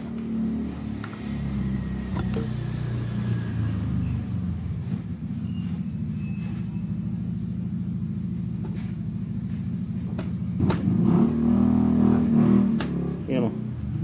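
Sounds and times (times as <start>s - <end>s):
engine idling: 1.0s - 10.8s.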